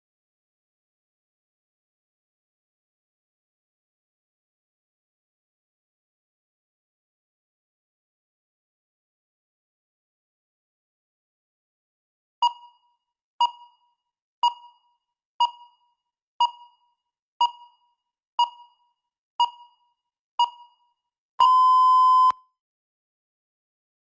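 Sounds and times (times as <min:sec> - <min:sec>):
countdown timer short beeps: 0:12.4 - 0:14.8, 0:15.4 - 0:15.8, 0:16.4 - 0:18.8, 0:19.4 - 0:19.8, 0:20.4 - 0:20.8, 0:21.4 - 0:22.4
long steady beep: 0:21.4 - 0:22.4.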